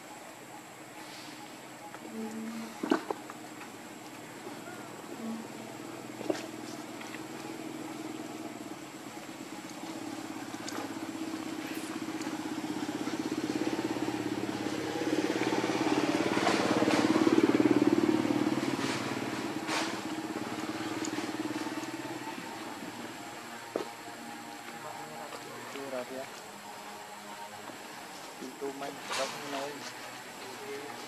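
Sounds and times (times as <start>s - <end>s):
vehicle engine passing by: 9.9s - 31.0s.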